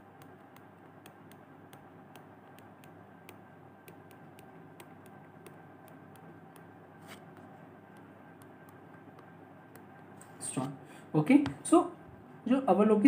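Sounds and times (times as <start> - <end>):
stylus ticking on screen: 0.0 - 6.8, 7.9 - 10.0
low hum and hiss: 0.0 - 13.0.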